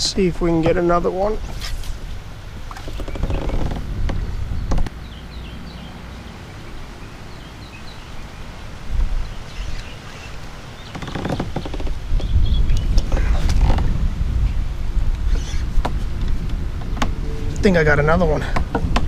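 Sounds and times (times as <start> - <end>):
low steady rumble: 0.0 - 10.9, 11.9 - 19.0
small bird chirping: 9.2 - 13.1, 15.3 - 15.7.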